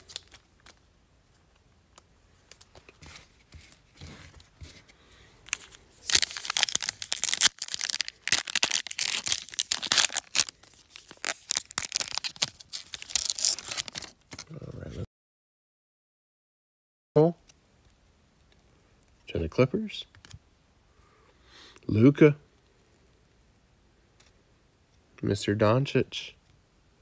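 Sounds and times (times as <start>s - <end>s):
card pack wrapper tearing: 0.0s - 0.8s, 5.5s - 14.5s
wrapper rustling: 0.0s - 0.8s, 5.4s - 14.5s.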